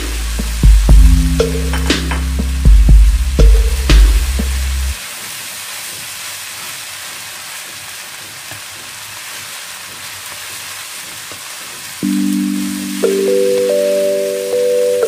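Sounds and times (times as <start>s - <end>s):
rice sizzling in a frying pan: 0.0s - 0.6s, 5.0s - 15.0s
background music: 0.0s - 5.0s, 12.0s - 15.0s
wooden spatula stirring rice: 5.1s - 12.0s.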